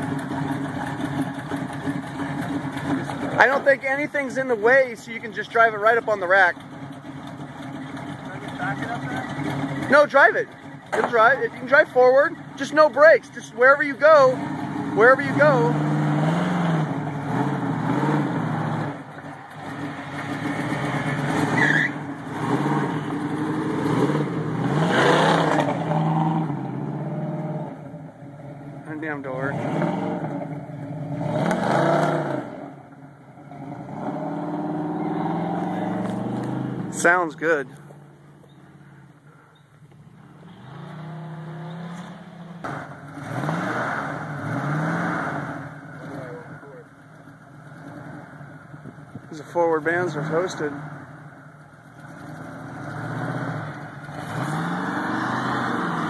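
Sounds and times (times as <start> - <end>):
tyres spinning on dirt: 0.0 - 16.6, 17.3 - 26.1
car engine revving: 0.0 - 56.0.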